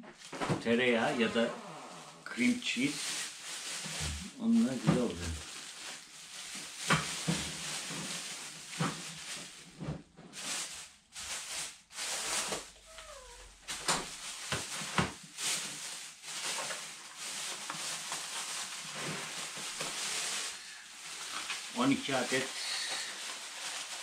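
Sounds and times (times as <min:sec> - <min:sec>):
plastic bags rustling: 0:00.1 - 0:24.0.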